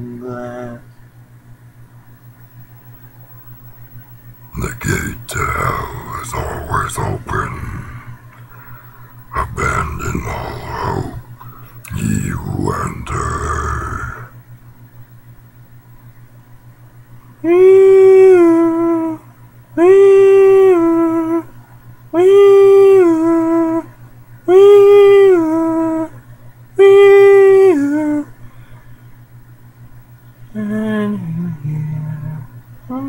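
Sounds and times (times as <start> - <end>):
person howling: 4.6 - 8.7, 9.3 - 14.3, 17.4 - 19.2.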